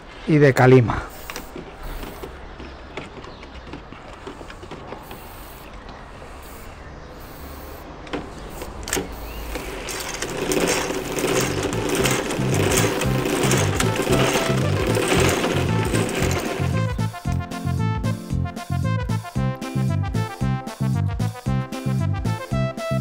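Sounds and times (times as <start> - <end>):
bucket handling noise: 1.2 - 6.1, 8.1 - 17.4.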